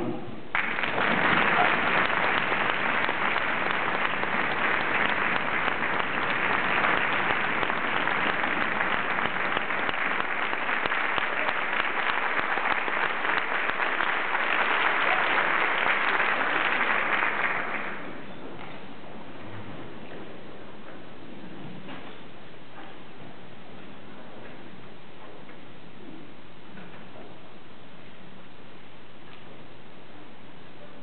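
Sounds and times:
audience applauding: 0.5 - 18.2.

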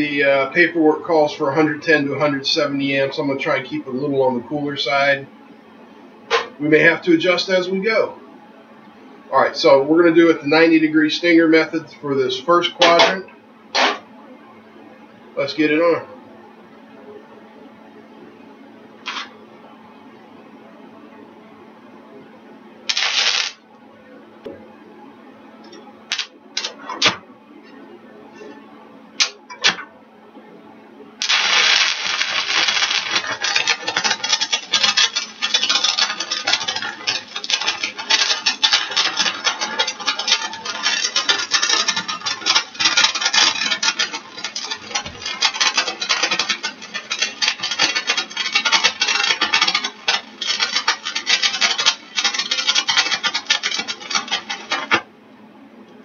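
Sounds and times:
welding arc crackling: 19.0 - 19.3, 22.9 - 23.6, 26.0 - 27.2, 29.2 - 29.8, 31.2 - 55.1.

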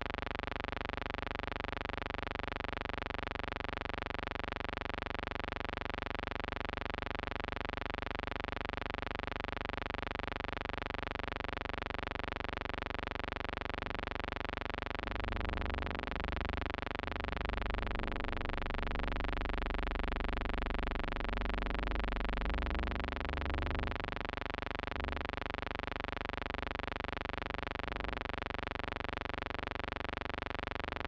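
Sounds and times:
electrical buzzing hum: 10.6 - 31.0
low rumble: 15.0 - 25.4.

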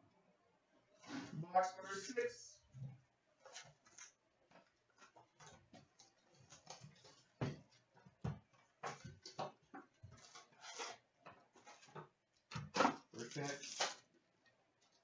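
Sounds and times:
cardboard and foil crinkling: 13.2 - 14.1.

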